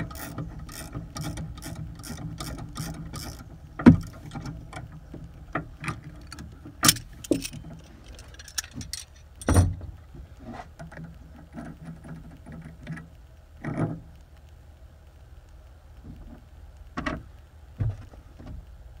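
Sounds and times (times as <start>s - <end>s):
wrench clicking and clanking on metal: 0.0s - 3.5s, 5.8s - 9.7s
tools clattering: 6.2s - 9.8s.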